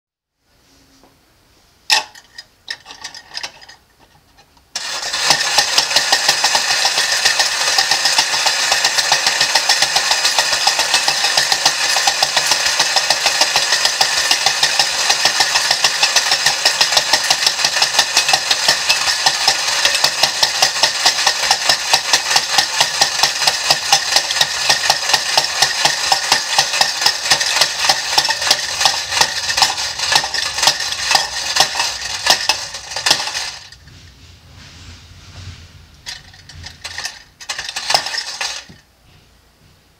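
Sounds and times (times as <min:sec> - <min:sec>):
clockwork spring whirring: 0:04.7 - 0:33.8, 0:36.0 - 0:38.8
rapid metallic tin clatter: 0:04.8 - 0:33.8, 0:36.1 - 0:38.8.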